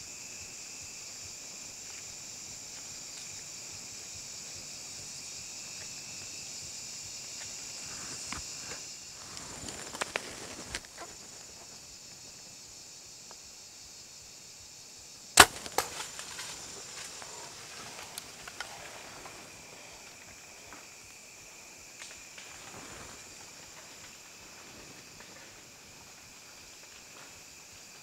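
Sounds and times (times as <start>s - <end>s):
bow string snap: 15.4s - 16.5s
arrow striking animal: 15.4s - 16.6s.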